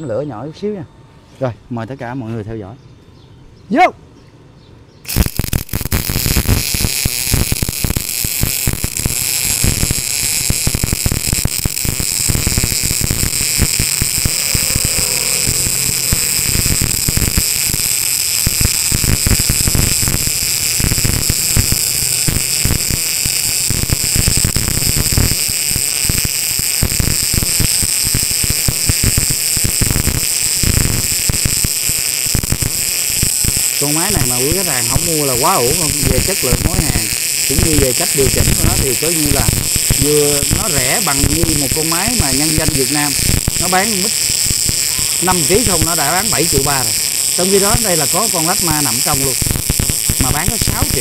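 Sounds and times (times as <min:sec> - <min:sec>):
welding arc crackling: 0:05.0 - 0:51.0.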